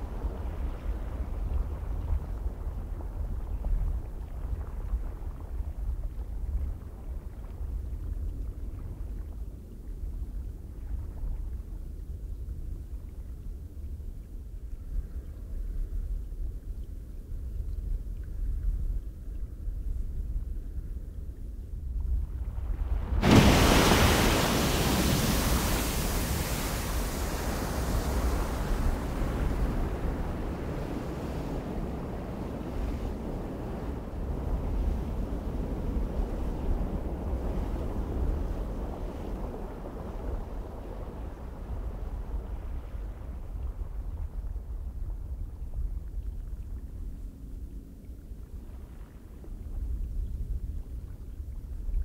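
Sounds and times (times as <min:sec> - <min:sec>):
wind gusting with deep rumble: 0:21.6 - 0:47.6.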